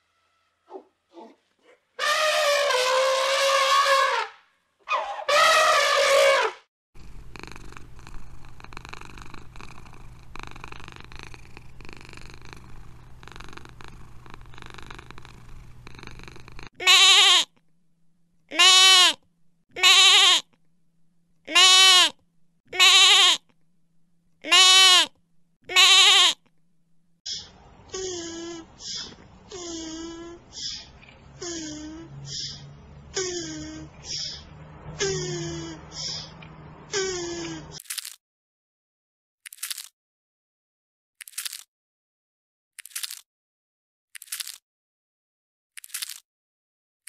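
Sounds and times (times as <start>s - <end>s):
elephant calls: 0.0s - 6.6s
cat purring: 7.0s - 16.8s
young goat bleating: 16.8s - 17.5s, 18.5s - 19.2s, 19.8s - 20.4s, 21.5s - 23.4s, 24.5s - 25.1s, 25.7s - 26.4s.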